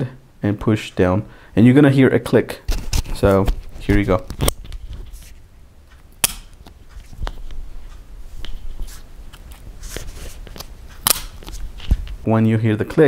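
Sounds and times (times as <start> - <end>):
handling noise: 2.7 - 12.3.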